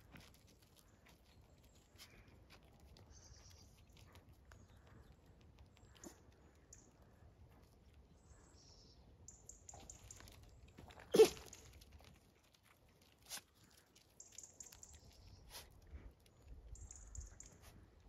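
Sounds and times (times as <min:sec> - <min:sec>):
paws scraping on gravel: 0:00.0 - 0:06.5, 0:09.7 - 0:16.8.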